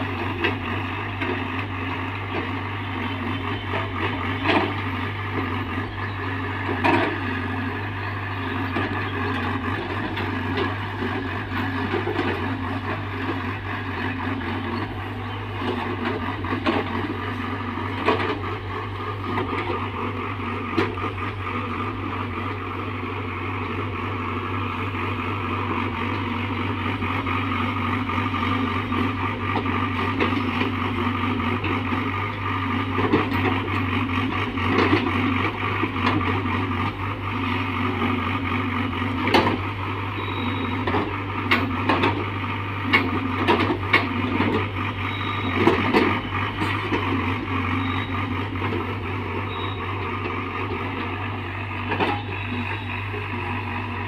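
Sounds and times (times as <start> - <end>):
excavator diesel engine running: 0.0 - 54.0
excavator bucket clanks: 42.9 - 47.1.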